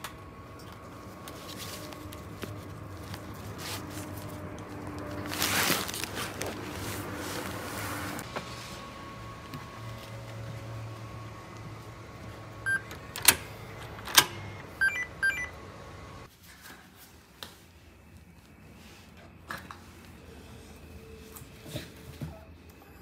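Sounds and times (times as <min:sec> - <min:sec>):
electronic lock beeps: 0:12.7 - 0:13.4, 0:14.1 - 0:15.5.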